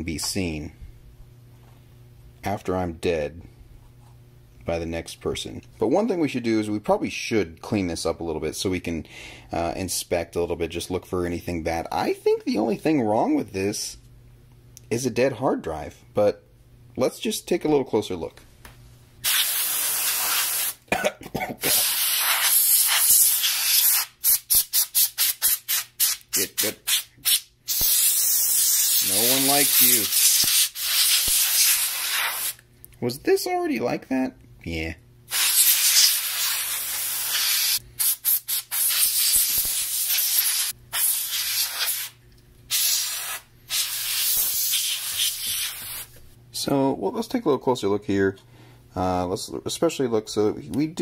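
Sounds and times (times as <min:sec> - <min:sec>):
aerosol spray hissing: 0:19.2 - 0:20.8, 0:21.6 - 0:26.2, 0:26.8 - 0:32.6, 0:35.3 - 0:46.2.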